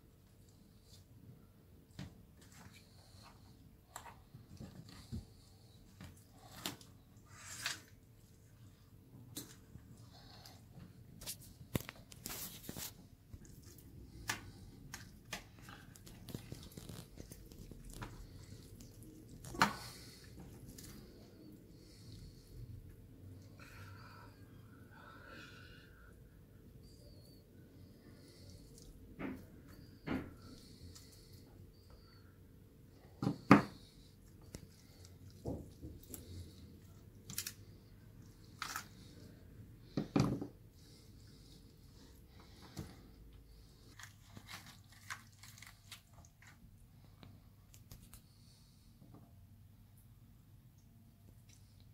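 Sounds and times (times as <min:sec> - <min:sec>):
meat tearing off bone: 0:14.2 - 0:20.9, 0:43.9 - 0:46.5.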